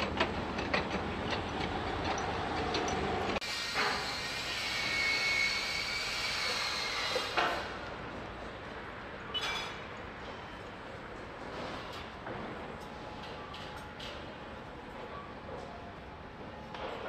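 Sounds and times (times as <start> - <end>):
traffic: 0.0 - 3.4, 6.9 - 15.0.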